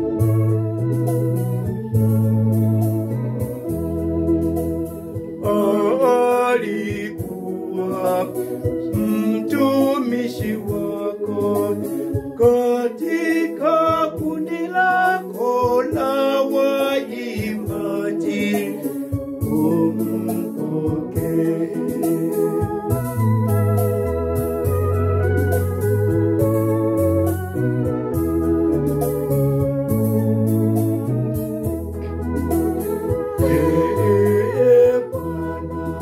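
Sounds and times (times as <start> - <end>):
electronic organ chords: 0.0 - 36.0
choir singing a hymn: 5.4 - 22.5, 33.4 - 36.0.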